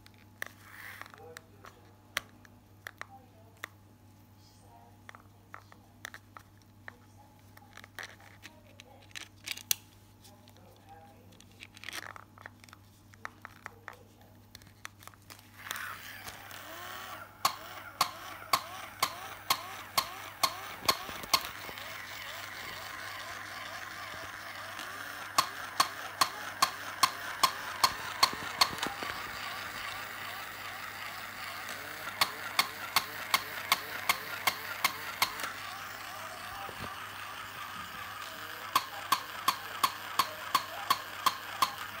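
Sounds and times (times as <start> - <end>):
toy motor whirring: 0.1 - 1.4, 7.5 - 9.7, 11.7 - 12.7, 14.9 - 42.0
toy dog barking: 15.8 - 42.0
plastic clicks: 17.4 - 31.4.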